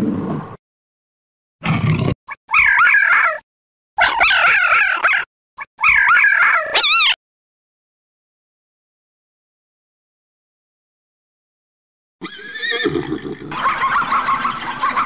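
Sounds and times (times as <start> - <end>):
jackal yapping and howling: 2.5 - 3.4, 4.0 - 7.2.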